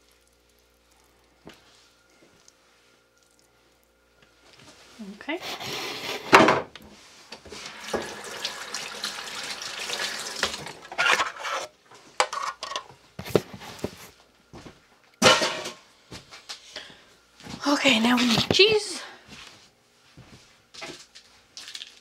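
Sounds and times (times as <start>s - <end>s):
water running at a sink: 7.4s - 11.7s
metal kitchenware clattering: 15.2s - 15.8s.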